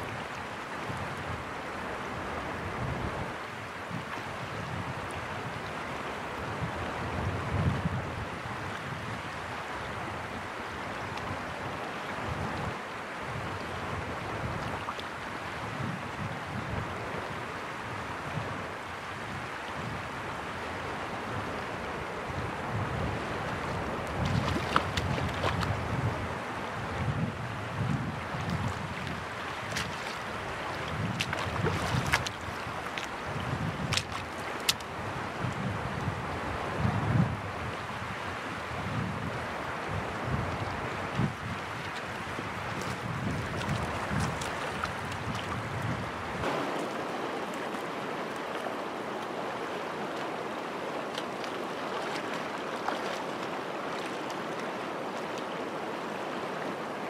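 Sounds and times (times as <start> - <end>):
rushing shallow water: 0.0 - 57.0
wind buffeting microphone: 6.4 - 9.3, 21.3 - 48.8
water running over stones: 23.5 - 25.8, 28.0 - 35.0, 40.7 - 55.8.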